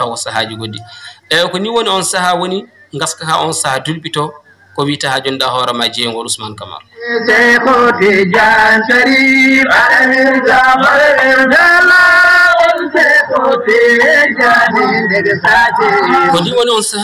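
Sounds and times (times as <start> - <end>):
people talking: 0.0 - 7.5, 14.4 - 17.0
chanted singing: 6.9 - 16.9.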